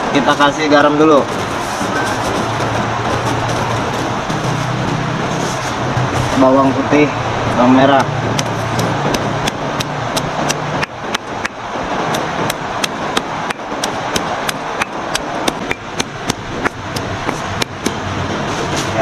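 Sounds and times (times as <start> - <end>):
stone pounding on rock: 9.1 - 18.0.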